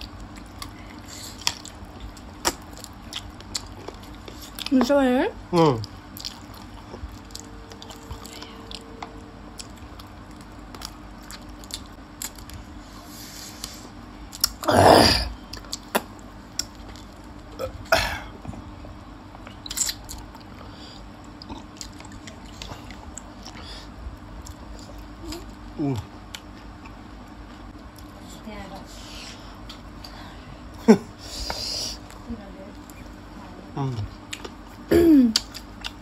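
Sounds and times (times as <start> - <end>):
close chewing and biting: 0.0 - 4.7, 5.8 - 12.7, 19.3 - 20.5, 21.3 - 23.7.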